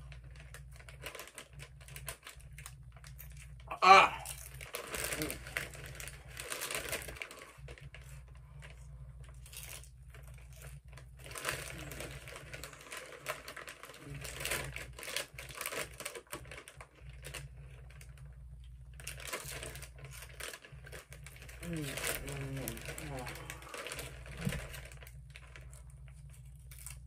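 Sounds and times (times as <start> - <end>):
plastic bag crinkling: 0.0 - 27.0
chips crunching while chewing: 0.5 - 8.2, 19.1 - 27.0.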